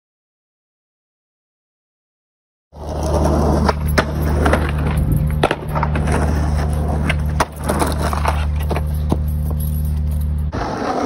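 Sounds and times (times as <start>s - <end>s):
skateboard wheels rolling on concrete: 2.7s - 11.0s
steady low hum: 2.8s - 10.8s.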